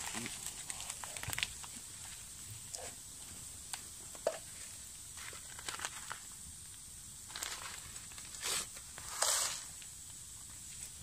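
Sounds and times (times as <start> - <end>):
plastic packaging crinkling: 0.0 - 2.8, 5.1 - 6.4, 7.3 - 9.9.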